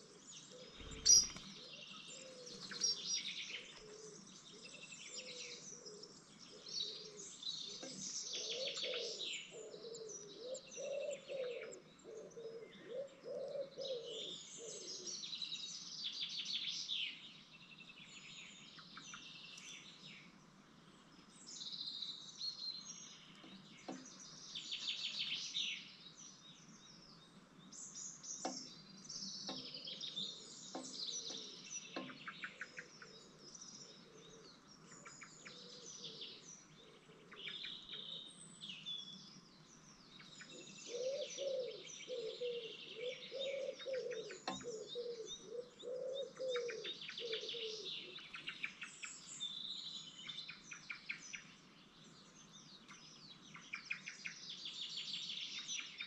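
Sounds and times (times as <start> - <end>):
songbirds chirping and trilling: 0.0 - 56.0
lower repeated bird call: 40.5 - 50.0.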